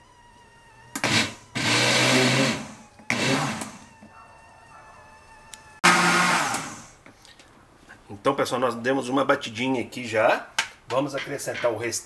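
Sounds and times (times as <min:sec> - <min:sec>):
blender pulsing: 0:01.0 - 0:03.9, 0:05.8 - 0:07.0.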